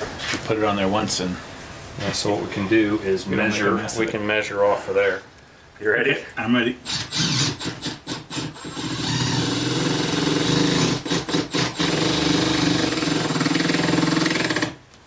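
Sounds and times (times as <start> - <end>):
cordless drill driving screw: 6.8 - 14.8.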